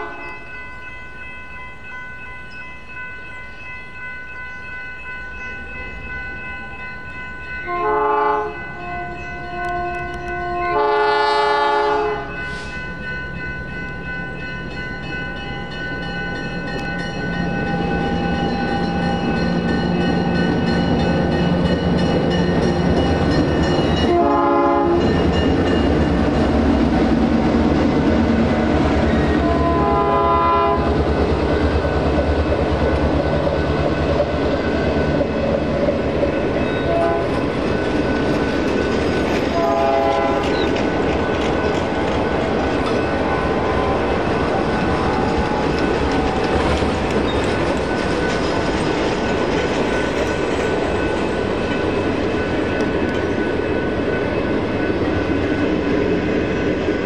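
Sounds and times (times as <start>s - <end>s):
crossing bells ringing: 0.0s - 57.0s
locomotive air horn blasts: 7.7s - 12.8s, 24.0s - 25.1s, 29.4s - 31.0s, 36.8s - 37.4s, 39.6s - 40.5s
locomotive engine: 12.3s - 57.0s
train wheel clatter: 16.0s - 30.1s, 30.8s - 57.0s.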